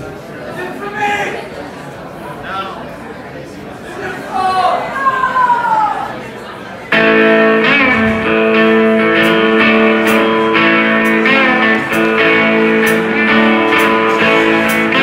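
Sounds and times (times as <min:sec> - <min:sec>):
electric guitars: 0:06.9 - 0:15.0.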